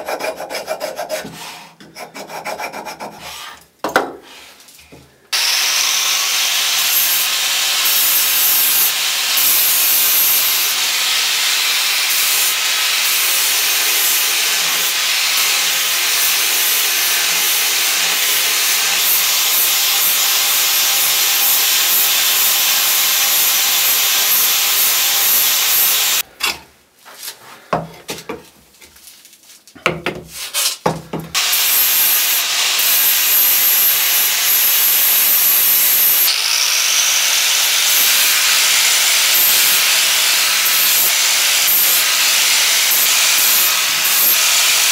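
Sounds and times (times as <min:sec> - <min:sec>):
angle grinder grinding steel: 0:05.4 - 0:26.3, 0:31.4 - 0:44.9.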